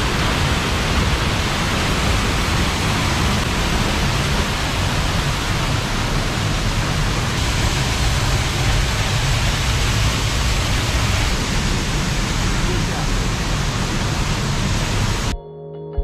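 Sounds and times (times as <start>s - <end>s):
waterfall rushing: 0.0s - 15.3s.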